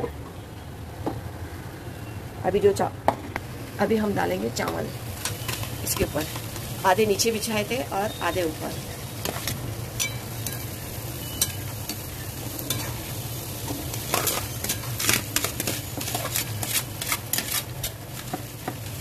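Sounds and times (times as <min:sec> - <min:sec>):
oil sizzling in pot: 0:03.3 - 0:19.0
metal spoon scraping metal pot: 0:13.9 - 0:18.0.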